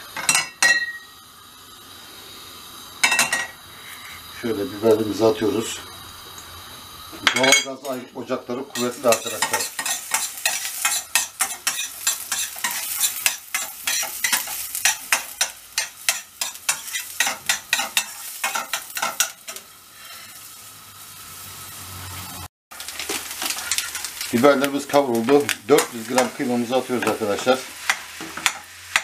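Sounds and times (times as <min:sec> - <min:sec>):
peppers sizzling in oil: 0:00.0 - 0:29.0
metal spoon scraping a pan: 0:08.7 - 0:20.4, 0:22.8 - 0:24.3.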